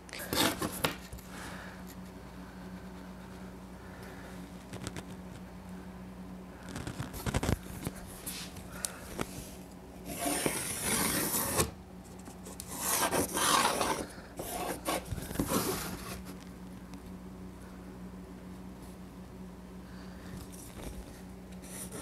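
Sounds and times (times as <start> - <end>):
pencil scraping on plywood: 10.1 - 11.7, 12.5 - 16.3.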